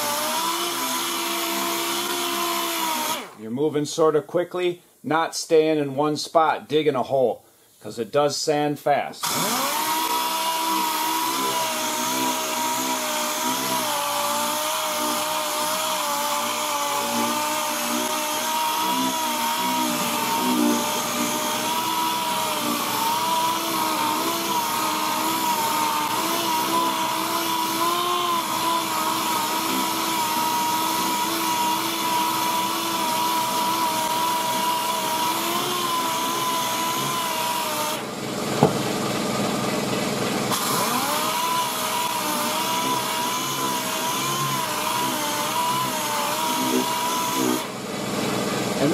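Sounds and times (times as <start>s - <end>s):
palm sander whining: 0.0s - 3.4s, 9.2s - 48.9s
sharp knock: 38.6s - 38.9s.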